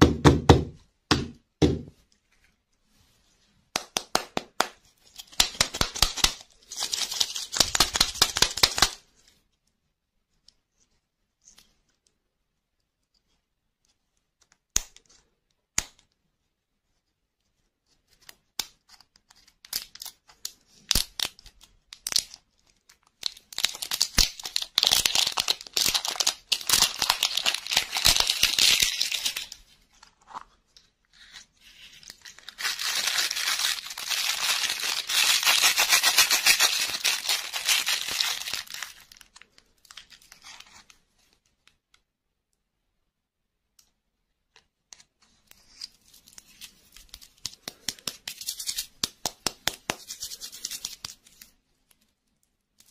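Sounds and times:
plastic wrapper crinkling: 0:05.0 - 0:09.0, 0:19.6 - 0:30.6, 0:31.2 - 0:41.5.

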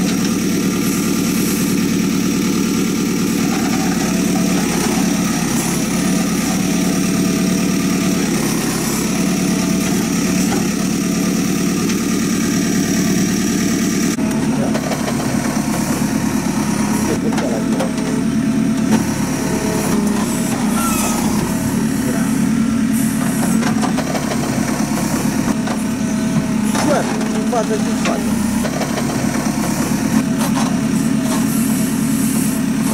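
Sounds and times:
diesel engine running: 0:00.0 - 0:32.9
knocks and clunks: 0:17.2 - 0:19.1.

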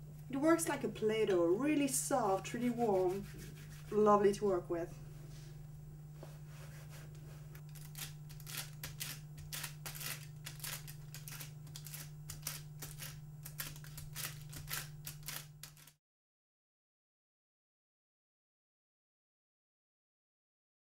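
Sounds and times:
steady low hum: 0:00.0 - 0:16.0
crisp clicks and crackles: 0:07.6 - 0:16.0.

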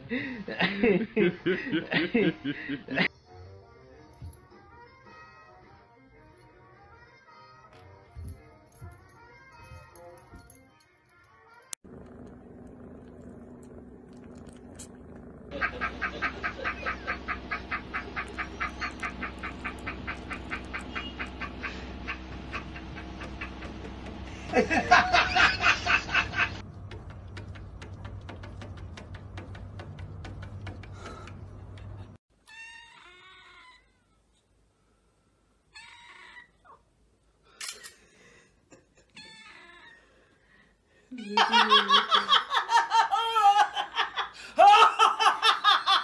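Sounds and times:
man laughing in high-pitched pulses: 0:00.0 - 0:03.1, 0:15.5 - 0:26.6, 0:41.2 - 0:46.0.

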